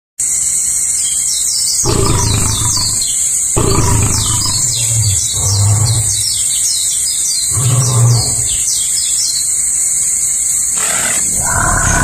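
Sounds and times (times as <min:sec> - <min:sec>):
falling chirps: 0:01.8 - 0:09.0, 0:10.6 - 0:12.0
lions growling roars: 0:01.9 - 0:08.9, 0:10.8 - 0:12.0.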